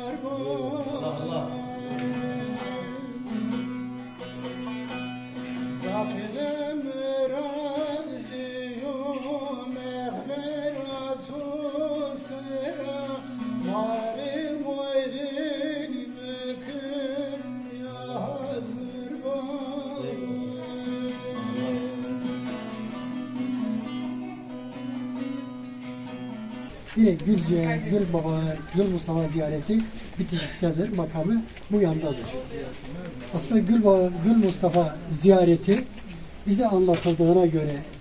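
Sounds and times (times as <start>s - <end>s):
plucked long-necked lute strings: 0.0s - 6.4s
man singing folk song: 0.0s - 38.0s.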